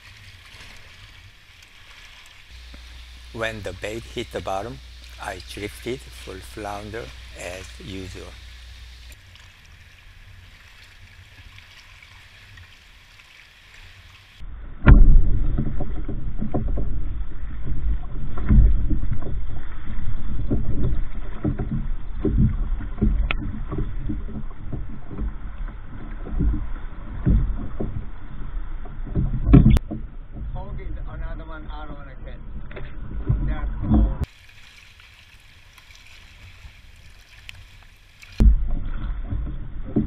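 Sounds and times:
water slapping against kayak hull: 0.0 - 12.6, 14.8 - 40.0
faint steady hiss: 0.0 - 14.4.

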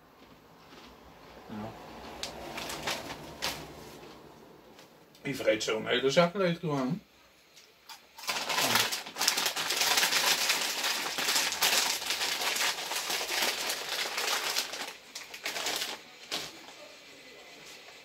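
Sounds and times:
snack bag crinkling: 7.9 - 16.6.

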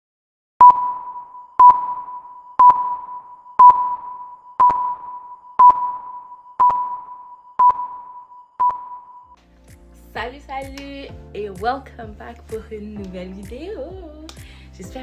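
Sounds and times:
click with electronic beep: 0.6 - 9.3.

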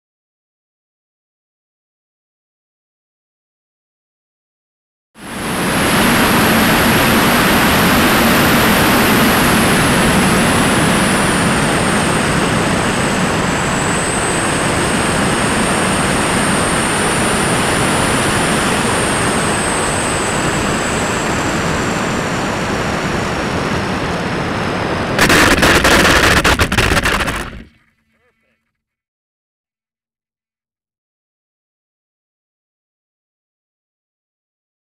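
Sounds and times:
high whine: 17.1 - 27.8.

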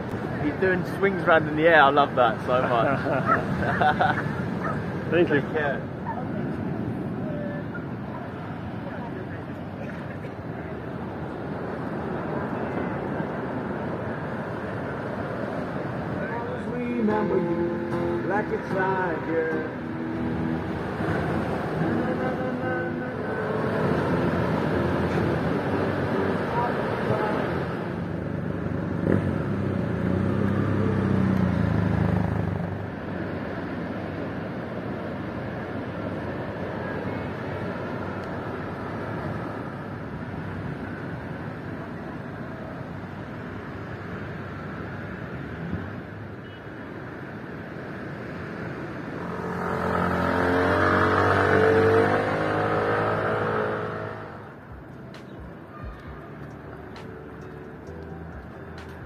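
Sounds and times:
outdoor background noise: 0.0 - 59.0
engine humming: 1.3 - 41.1
motor vehicle passing by: 2.4 - 8.9, 17.6 - 39.8, 48.1 - 54.7.

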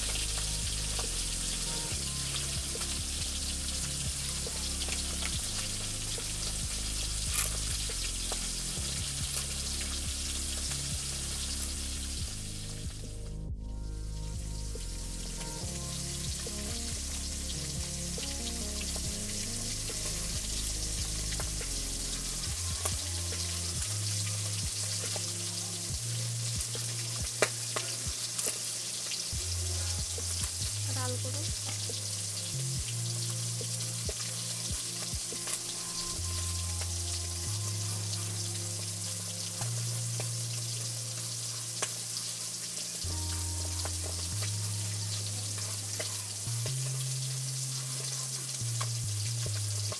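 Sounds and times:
background music with bass: 0.0 - 49.9
steady hiss: 0.0 - 49.9.

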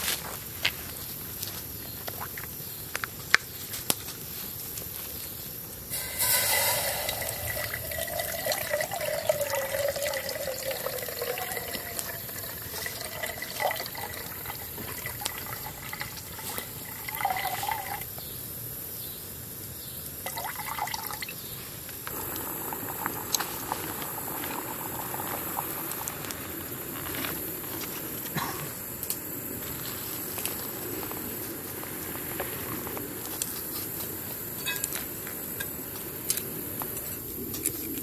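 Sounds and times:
water splashing: 5.9 - 17.9
water pouring into metal pot: 5.9 - 18.1, 20.3 - 21.4, 22.1 - 26.4.

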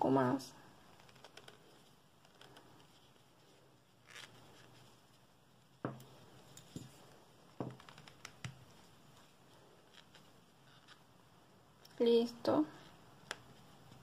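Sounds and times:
soft yarn rustling: 0.0 - 14.0.

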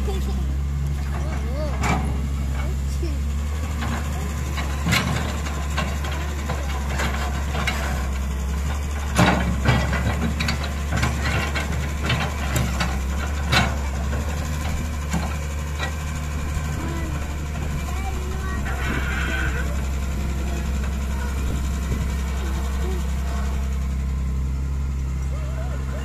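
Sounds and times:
excavator diesel engine running: 0.0 - 26.0
sharp knocks and clanks: 3.6 - 16.2.

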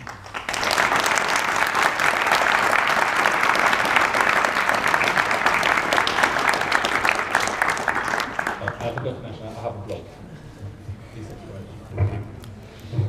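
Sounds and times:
audience applauding: 0.0 - 9.3.

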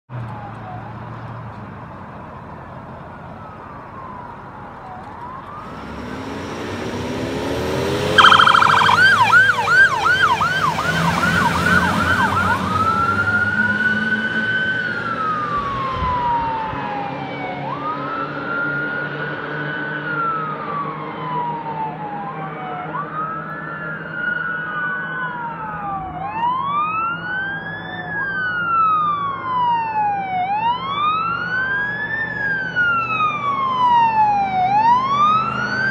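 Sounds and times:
fire engine siren wailing: 3.1 - 6.4, 7.9 - 35.9
fire engine revving: 4.0 - 8.3, 9.2 - 18.8, 26.6 - 35.9
second siren wailing: 8.1 - 19.0, 19.6 - 35.9.

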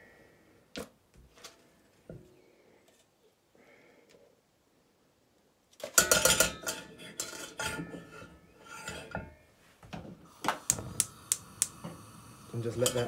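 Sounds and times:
metal saucepan clattering: 5.8 - 9.4, 12.8 - 13.0.

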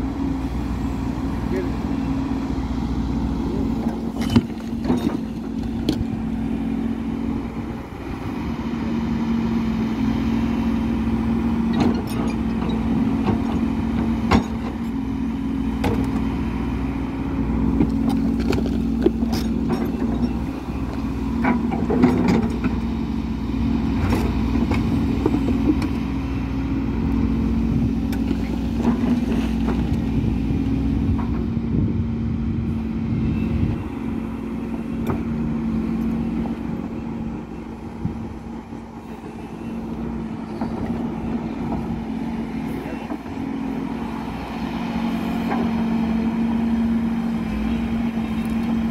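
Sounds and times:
excavator diesel engine: 0.0 - 48.9.

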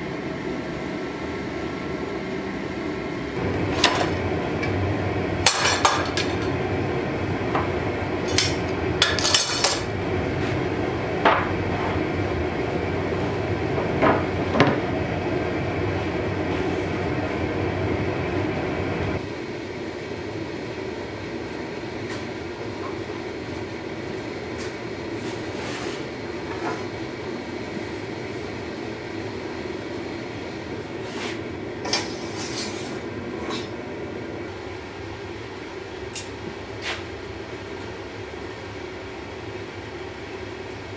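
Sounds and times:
gas burners rushing: 0.0 - 40.9.

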